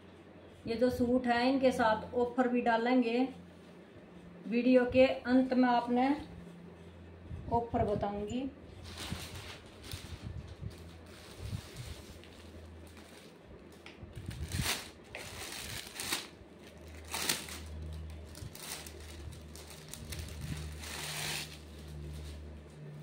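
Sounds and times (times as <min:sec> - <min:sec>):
plastic packaging crinkling: 0:08.8 - 0:22.4.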